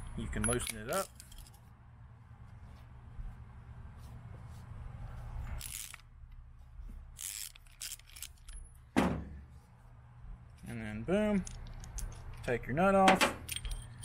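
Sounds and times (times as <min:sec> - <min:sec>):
steady low hum: 0:00.0 - 0:14.0
ratchet wrench clicks: 0:05.6 - 0:06.0, 0:07.2 - 0:08.6.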